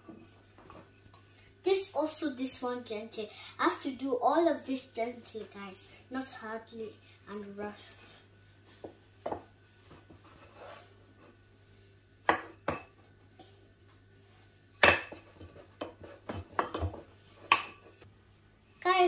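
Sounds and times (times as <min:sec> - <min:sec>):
rolling pin knocking on countertop: 0:08.8 - 0:10.2, 0:12.2 - 0:13.0, 0:14.8 - 0:17.8.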